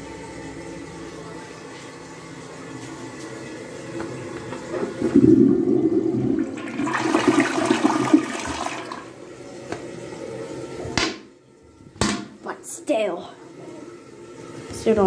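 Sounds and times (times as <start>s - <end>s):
toilet flushing: 4.1s - 11.4s
water rushing down drain: 4.7s - 9.2s.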